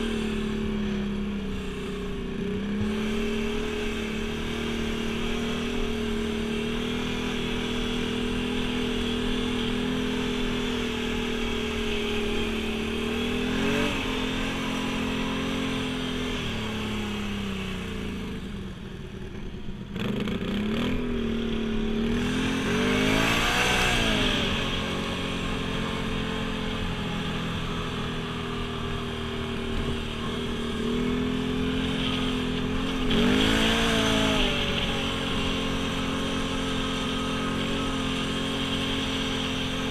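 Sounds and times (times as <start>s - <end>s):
atv engine revving: 0.0s - 39.9s.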